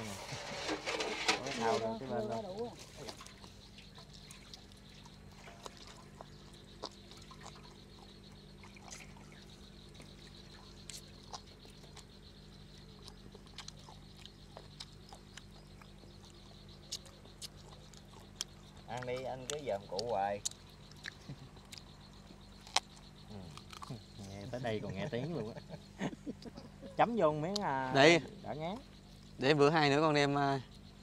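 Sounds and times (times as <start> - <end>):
man chewing: 3.0 - 24.2.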